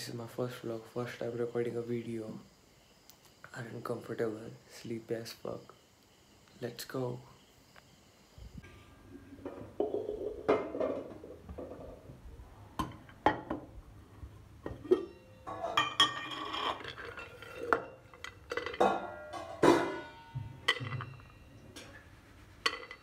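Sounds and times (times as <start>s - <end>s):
steel vessels clinking: 14.6s - 23.0s.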